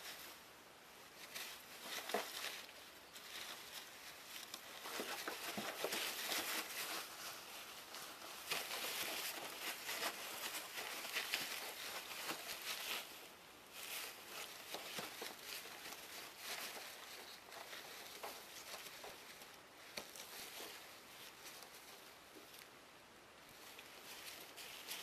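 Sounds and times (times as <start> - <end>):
paper bedding rustling: 1.2 - 22.1, 23.6 - 25.0.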